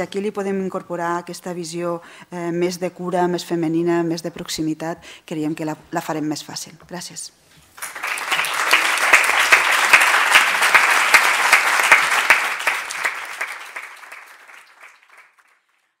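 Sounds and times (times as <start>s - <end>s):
audience applauding: 7.8s - 15.9s.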